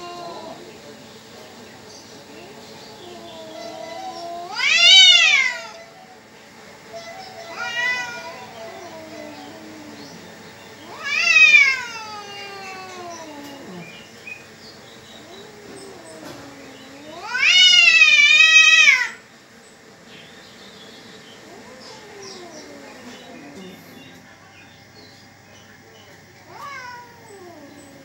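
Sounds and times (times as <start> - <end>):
low growling cries: 0.0 - 0.8, 2.2 - 14.1, 15.1 - 19.2, 21.4 - 24.1
cats yowling: 0.0 - 1.0, 2.2 - 19.3, 21.4 - 24.1, 26.3 - 28.0.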